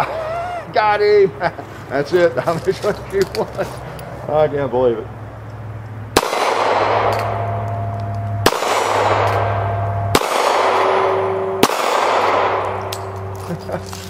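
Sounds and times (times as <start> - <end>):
revolver shots echoing: 6.1 - 13.3
steel target ringing: 6.2 - 13.7.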